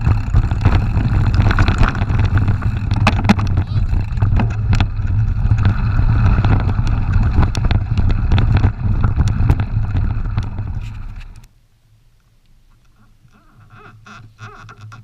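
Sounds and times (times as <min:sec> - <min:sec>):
bike rattling on stones: 0:00.0 - 0:11.5
wind buffeting microphone: 0:00.0 - 0:11.5.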